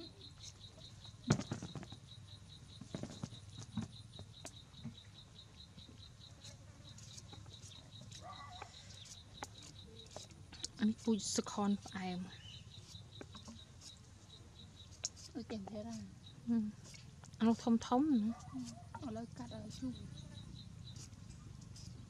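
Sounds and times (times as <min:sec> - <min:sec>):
insect chirping: 0:00.0 - 0:22.0.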